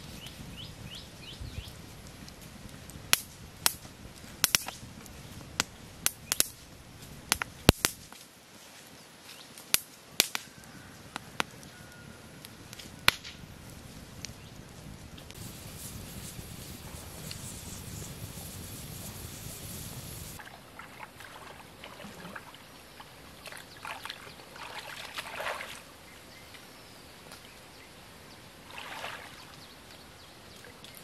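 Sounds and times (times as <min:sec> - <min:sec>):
campfire crackling: 0:00.0 - 0:23.1
bamboo popping in fire: 0:01.4 - 0:08.4, 0:09.4 - 0:11.8, 0:12.4 - 0:20.5.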